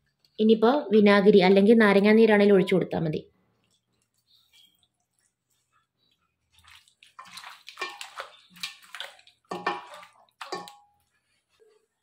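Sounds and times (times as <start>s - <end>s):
wet squelching of marinade: 3.4s - 12.0s.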